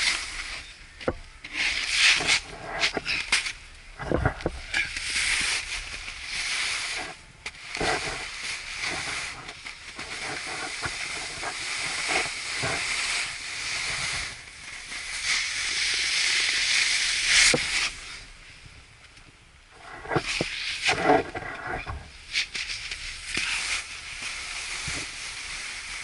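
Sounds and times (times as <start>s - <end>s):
snowboard hissing over snow: 0.0s - 0.7s, 1.5s - 3.6s, 4.8s - 18.3s, 19.8s - 26.0s
wind thumps on microphone: 2.1s - 14.5s, 19.8s - 22.3s.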